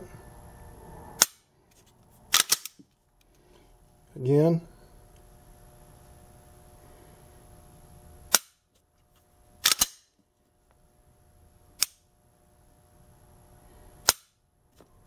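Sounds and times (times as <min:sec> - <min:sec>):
pistol dry-fire clicks: 0:02.3 - 0:02.8.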